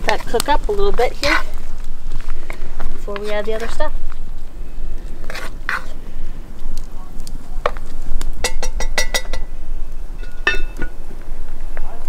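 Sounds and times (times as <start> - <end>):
metal utensil clinking on pot: 8.4 - 9.5, 10.2 - 11.0.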